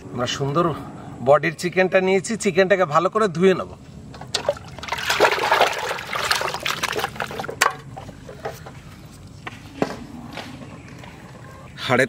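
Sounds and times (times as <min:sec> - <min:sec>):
water sloshing and splashing: 0:04.2 - 0:07.8.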